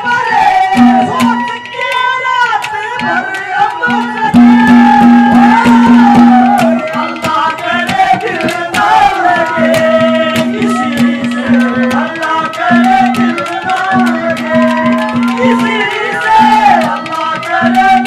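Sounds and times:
hand drum beating quickly: 0:00.2 - 0:01.7, 0:02.6 - 0:18.0
wavering melody line: 0:03.9 - 0:18.0.

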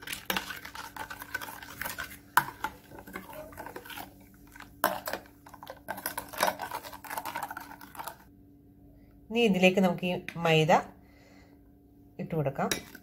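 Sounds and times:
spoon stirring in glass bowl: 0:00.0 - 0:08.3.

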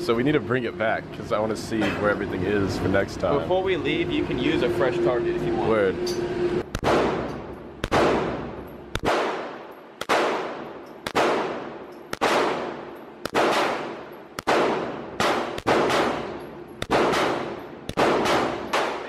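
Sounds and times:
handgun shots echoing indoors: 0:06.7 - 0:19.0.

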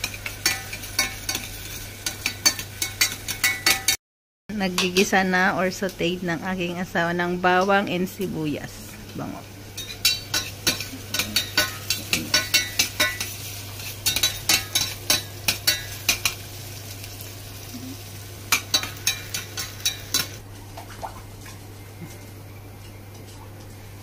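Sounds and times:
faint sizzle: 0:00.0 - 0:03.8, 0:04.5 - 0:24.0.

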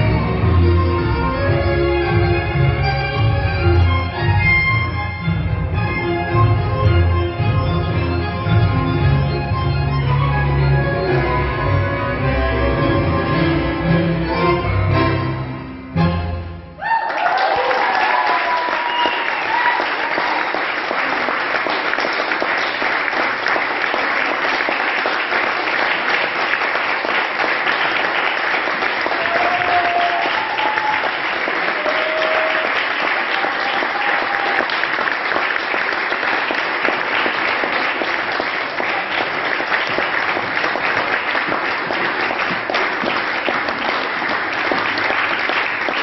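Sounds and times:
audience applauding: 0:16.8 - 0:46.0.

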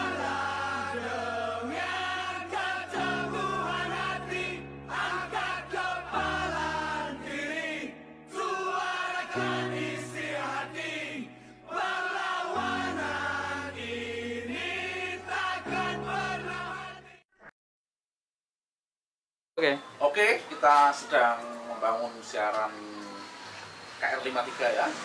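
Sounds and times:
voices singing together: 0:00.0 - 0:17.2.

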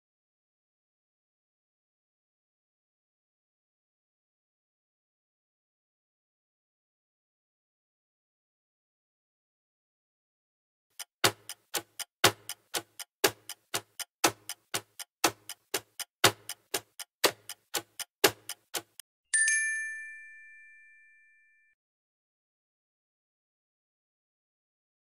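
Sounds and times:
clock ticking: 0:10.9 - 0:19.0
bell ding: 0:19.3 - 0:21.8.

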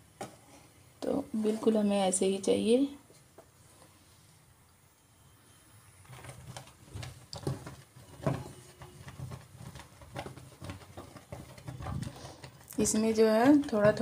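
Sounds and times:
thick paste bubbling and popping: 0:06.2 - 0:12.9.

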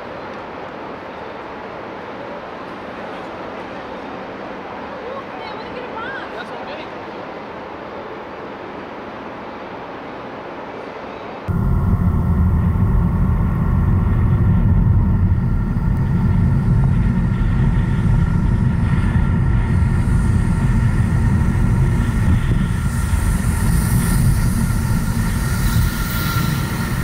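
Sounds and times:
high hiss: 0:07.6 - 0:27.0
car engine rumbling: 0:11.5 - 0:25.6
wind over microphone: 0:11.5 - 0:27.0.

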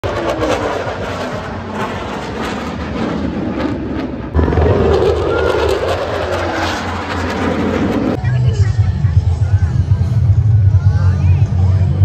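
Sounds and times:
jet fighter engine roar: 0:00.0 - 0:08.2.

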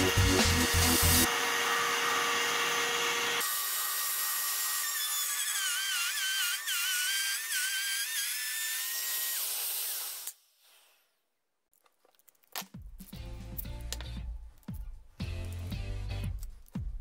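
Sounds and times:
router whining cutting wood: 0:00.0 - 0:10.3.

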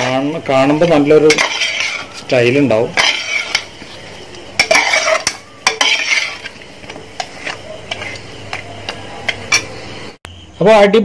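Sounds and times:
spatula scraping metal pot: 0:00.0 - 0:08.7
light sizzle: 0:00.0 - 0:10.2.

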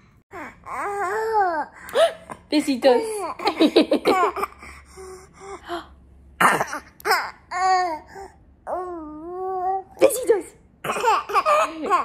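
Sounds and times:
baby coughing noises: 0:06.4 - 0:07.4, 0:10.8 - 0:12.0
baby laughing: 0:10.9 - 0:12.0.

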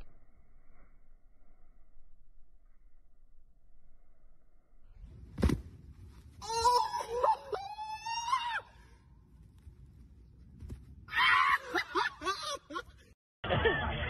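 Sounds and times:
body thudding on ground: 0:05.2 - 0:05.9.

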